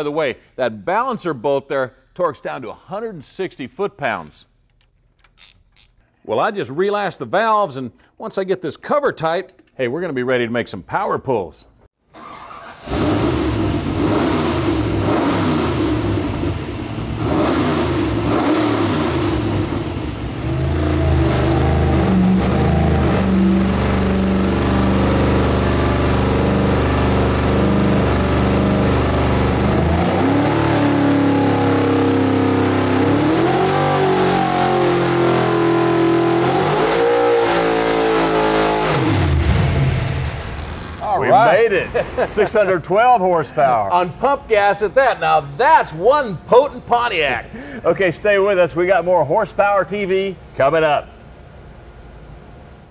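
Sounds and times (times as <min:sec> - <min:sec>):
engine revving under load: 0:12.2 - 0:41.5.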